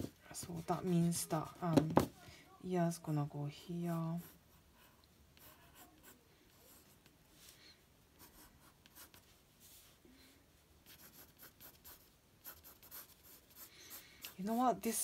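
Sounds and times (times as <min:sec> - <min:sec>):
pencil scratching on paper: 0:04.0 - 0:07.0, 0:08.2 - 0:09.3, 0:10.8 - 0:15.0.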